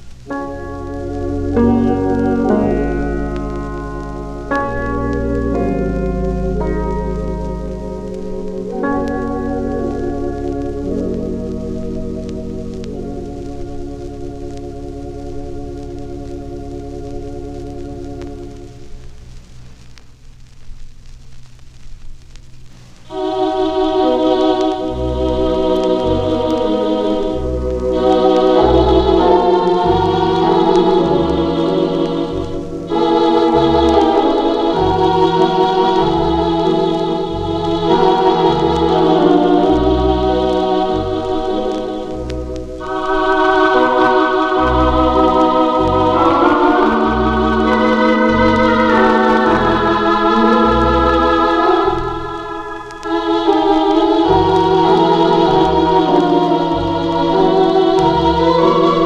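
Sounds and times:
pulsing bass line: 0:00.0 - 0:19.7, 0:23.6 - 0:59.0
organ chords: 0:00.0 - 0:21.4, 0:22.2 - 0:59.0
vinyl crackle and hiss: 0:00.0 - 0:59.0.

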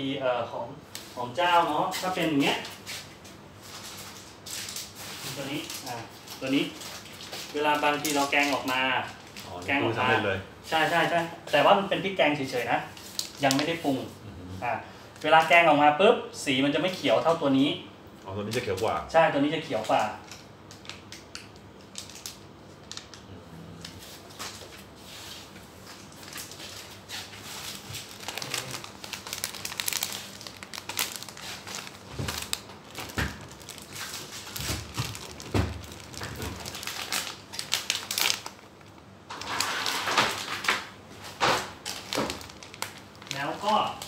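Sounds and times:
plastic bags crinkling: 0:01.4 - 0:11.2, 0:12.4 - 0:14.0, 0:19.7 - 0:23.2, 0:25.8 - 0:44.0.

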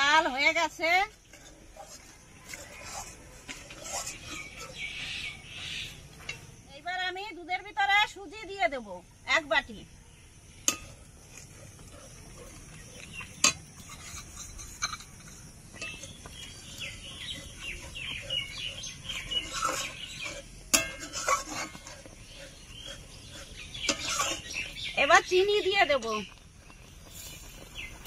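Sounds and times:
birds calling: 0:01.2 - 0:06.5, 0:10.1 - 0:28.0
metal kitchenware clinking: 0:02.5 - 0:04.9, 0:10.6 - 0:11.0, 0:13.1 - 0:18.4, 0:19.0 - 0:22.1, 0:23.7 - 0:24.6.

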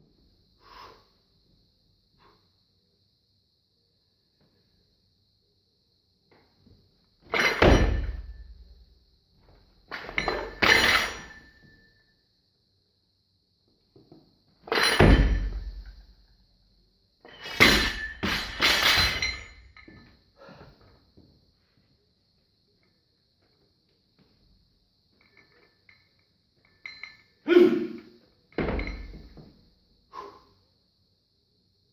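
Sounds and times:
barbell thudding on platform floor: 0:07.3 - 0:08.6, 0:14.7 - 0:15.9, 0:17.4 - 0:19.5, 0:28.6 - 0:29.5
bar and plates clattering: 0:09.9 - 0:11.7, 0:17.3 - 0:20.1.

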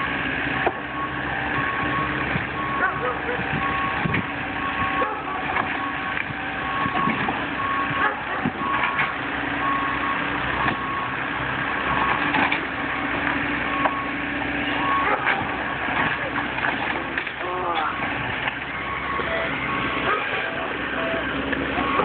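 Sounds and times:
excavator engine running: 0:00.0 - 0:22.0
backup alarm beeping: 0:00.6 - 0:09.0, 0:09.6 - 0:11.2, 0:12.9 - 0:15.8, 0:18.6 - 0:22.0.

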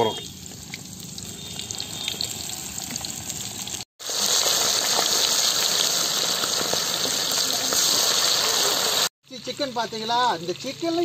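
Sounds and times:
chicken deep-frying in oil: 0:00.0 - 0:11.0.

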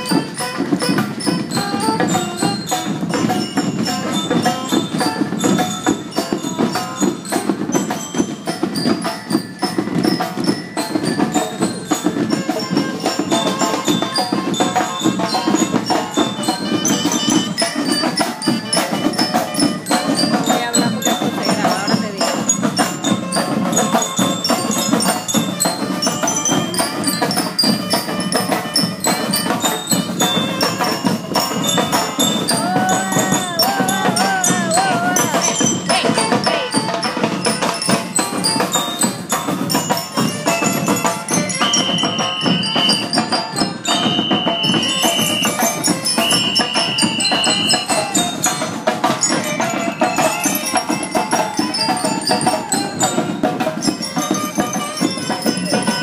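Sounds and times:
bells playing tune: 0:00.0 - 0:56.0
marching band drumming: 0:00.0 - 0:56.0
long high steady notes: 0:10.6 - 0:56.0.

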